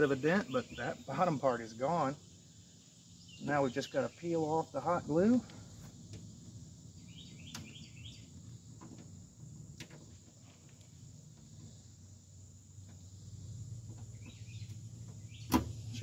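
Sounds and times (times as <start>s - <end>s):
bird chirps: 0.0s - 1.3s, 2.0s - 4.8s, 6.9s - 8.6s, 14.0s - 16.0s
high insect drone: 0.0s - 16.0s.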